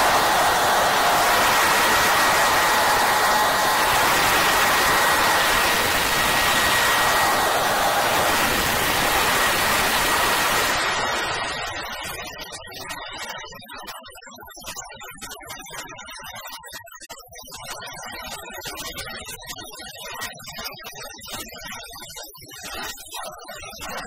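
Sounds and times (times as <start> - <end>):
dim drones: 0.0 - 11.9.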